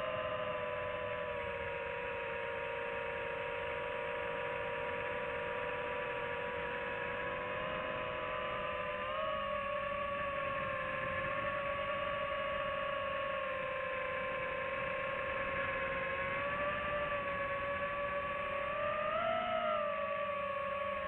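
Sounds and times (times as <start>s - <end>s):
drone motors whining: 0.0s - 21.0s.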